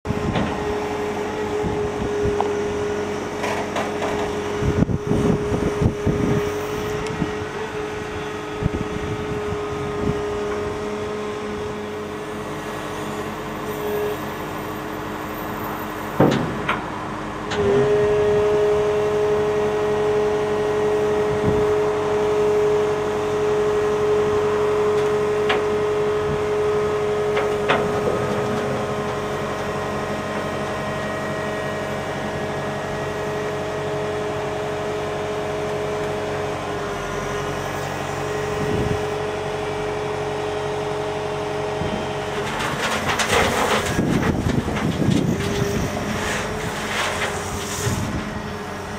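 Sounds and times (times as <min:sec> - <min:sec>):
excavator engine whine: 0:00.0 - 0:48.9.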